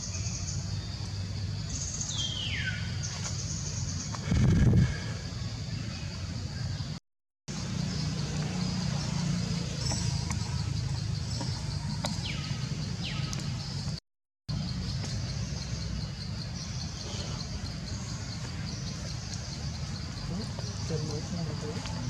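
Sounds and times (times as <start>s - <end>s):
insects droning: 0.0s - 22.0s
low rumble: 4.2s - 5.4s.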